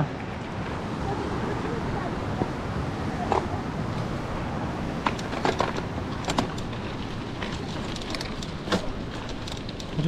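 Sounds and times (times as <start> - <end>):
stream rushing: 0.0 - 10.0
bike clicks and knocks: 5.0 - 10.0.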